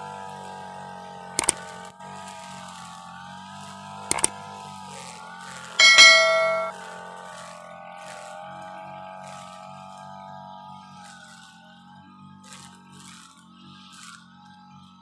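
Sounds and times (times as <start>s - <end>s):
quick double click: 4.1s - 4.3s, 5.8s - 6.7s
bright bell ding: 5.8s - 6.7s.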